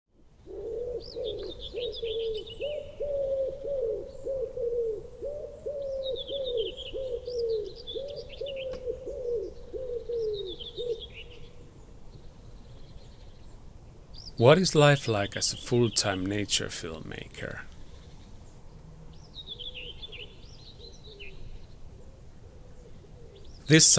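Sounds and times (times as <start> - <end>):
bird cooing: 0.4 - 11.7, 19.4 - 23.9
songbird twittering: 0.4 - 23.9.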